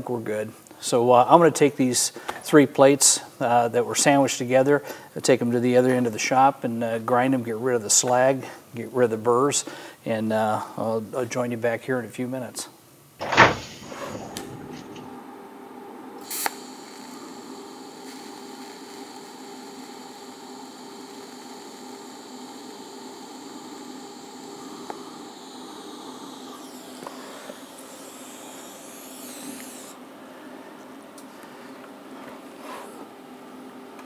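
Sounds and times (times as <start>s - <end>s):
welding arc hiss and buzz: 13.2s - 15.2s, 16.2s - 30.1s.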